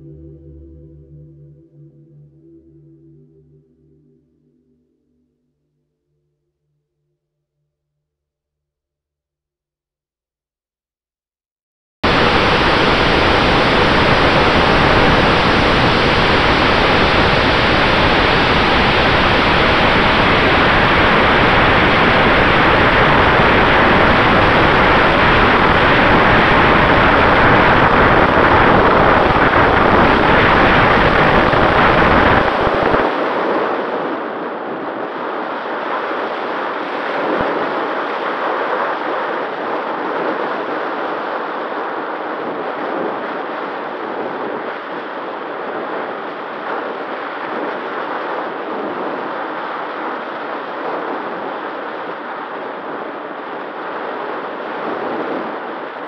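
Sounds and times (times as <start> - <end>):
wind buffeting microphone: 12.0 - 56.0.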